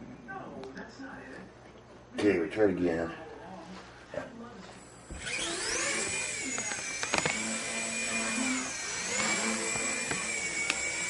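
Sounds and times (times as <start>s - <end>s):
toy helicopter motor whine: 4.9s - 11.0s.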